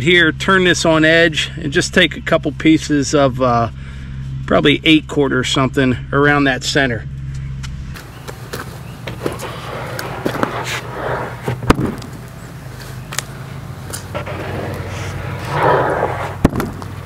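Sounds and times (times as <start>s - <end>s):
steady low hum: 0.0s - 17.0s
board scraping along stack: 8.4s - 13.0s, 13.8s - 17.0s.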